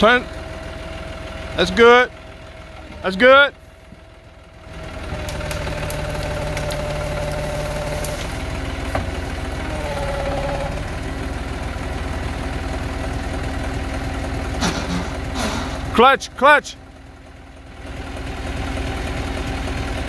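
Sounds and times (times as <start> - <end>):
tractor diesel engine running: 0.0 - 20.0
whining tone: 4.7 - 11.2.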